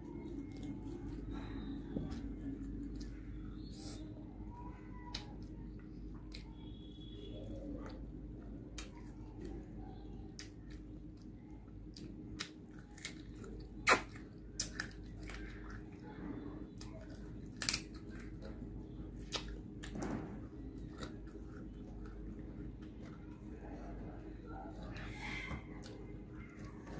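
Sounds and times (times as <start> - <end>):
person chewing food: 0.0 - 4.1, 10.2 - 16.1, 16.7 - 26.9.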